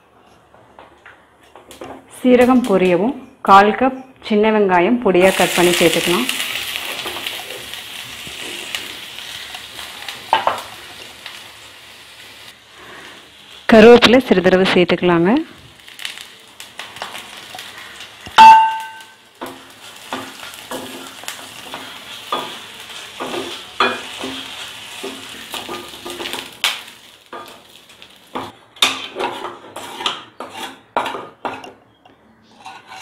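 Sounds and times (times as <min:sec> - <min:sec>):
food sizzling in hot oil: 0:05.2 - 0:28.6
loud metallic clang: 0:18.4 - 0:19.1
spatula clinking against pan: 0:18.4 - 0:19.1.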